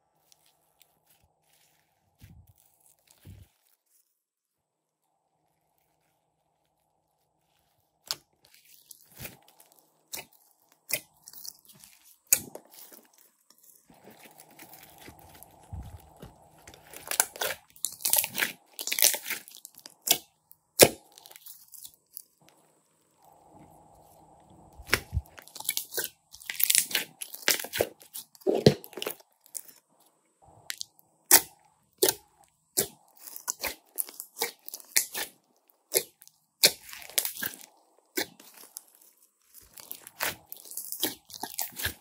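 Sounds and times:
slime crackling and popping: 6.7 - 22.5, 24.7 - 29.8, 30.6 - 42.0.

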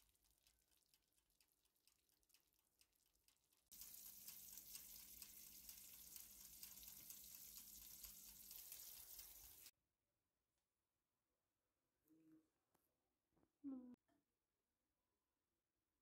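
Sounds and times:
oven hissing: 3.7 - 9.7.

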